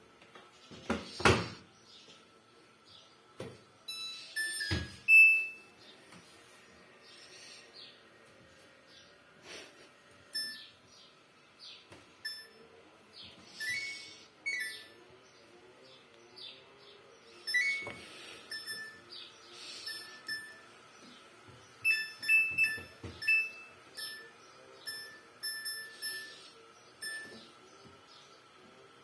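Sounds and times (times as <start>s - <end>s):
washing machine control panel beeps: 3.9s - 5.7s, 10.3s - 10.7s, 12.2s - 12.7s, 13.6s - 15.0s, 17.4s - 19.0s, 19.8s - 20.6s, 21.8s - 26.3s, 27.0s - 27.6s.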